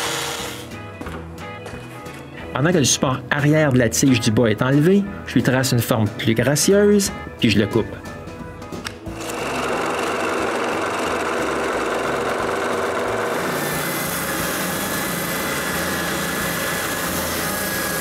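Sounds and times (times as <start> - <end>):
scroll saw cutting wood: 0.0 - 0.7, 9.1 - 18.0
spindle sander humming: 0.0 - 0.7, 9.1 - 18.0.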